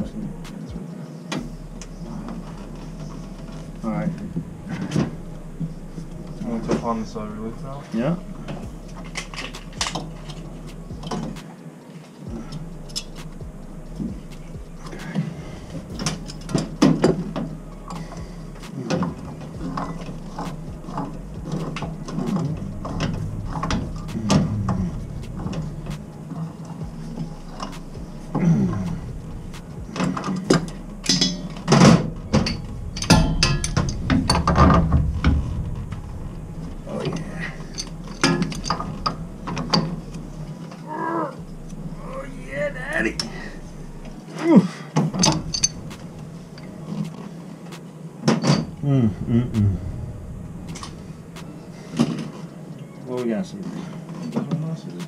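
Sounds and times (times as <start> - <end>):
low steady hum: 0.0 - 54.3
metal tools clanking and scraping: 14.8 - 29.1, 29.9 - 35.9, 36.8 - 40.8, 45.0 - 47.2.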